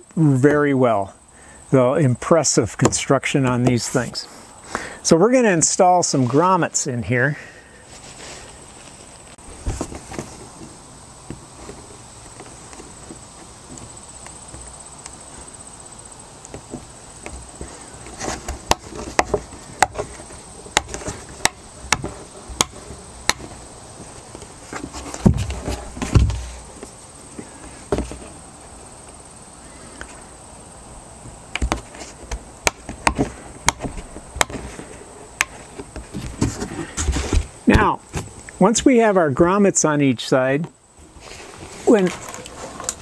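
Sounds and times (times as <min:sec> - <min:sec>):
plastic box thumps: 0:16.5 - 0:23.6, 0:24.7 - 0:26.6, 0:27.9 - 0:28.3, 0:31.6 - 0:34.8, 0:35.4 - 0:38.4.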